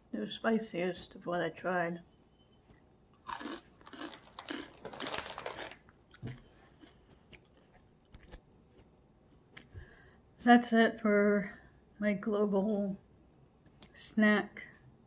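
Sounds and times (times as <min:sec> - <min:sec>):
crunching and chewing snack: 0:02.7 - 0:08.9.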